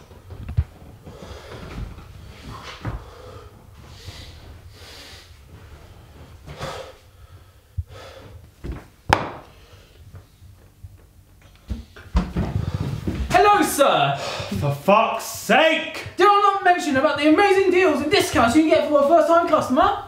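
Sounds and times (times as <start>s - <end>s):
man breathing heavily: 0.8s - 8.6s, 9.4s - 10.4s, 12.4s - 13.3s, 14.2s - 14.7s.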